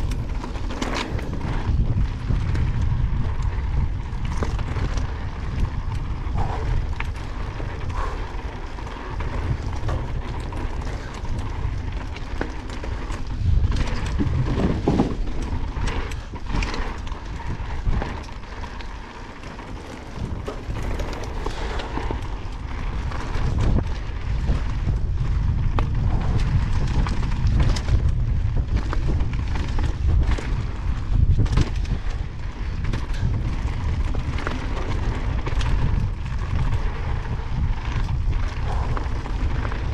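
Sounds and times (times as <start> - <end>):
tyres crunching over loose stones: 0.0 - 3.4, 8.4 - 25.4
steady low rumble: 0.0 - 12.4, 13.0 - 39.9
bike clacking and rattling on rocks: 0.0 - 39.9
wind buffeting microphone: 0.0 - 39.9.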